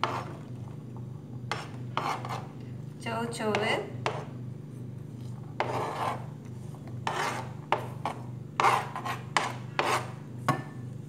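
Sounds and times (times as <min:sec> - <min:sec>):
hand scraping cutting board: 0:05.2 - 0:10.2.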